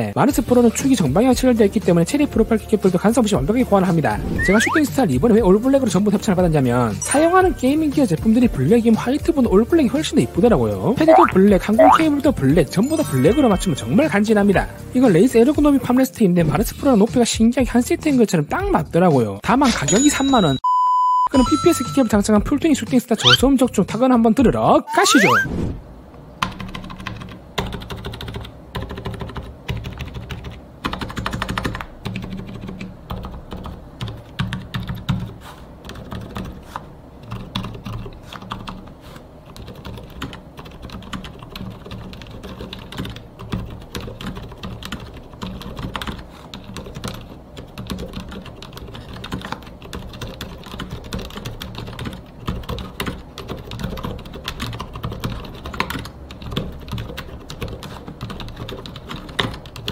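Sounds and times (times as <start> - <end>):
mechanical keyboard typing: 26.4 - 36.6, 39.6 - 59.9.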